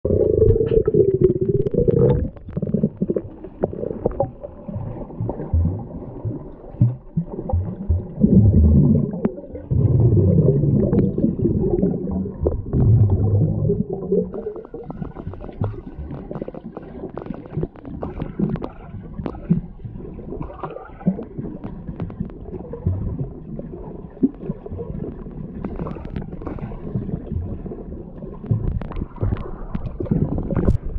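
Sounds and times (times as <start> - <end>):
muffled underwater churning: 0.0 - 30.9
small irregular underwater knocks: 14.8 - 23.3, 24.2 - 27.6, 28.2 - 30.9.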